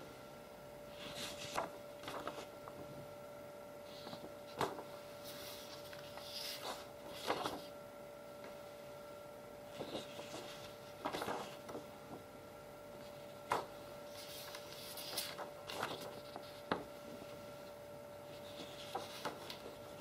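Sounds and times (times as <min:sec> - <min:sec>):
steady electrical hum: 0:00.0 - 0:20.0
paper rustling: 0:00.9 - 0:02.6, 0:03.9 - 0:07.7, 0:09.7 - 0:12.2, 0:13.0 - 0:20.0.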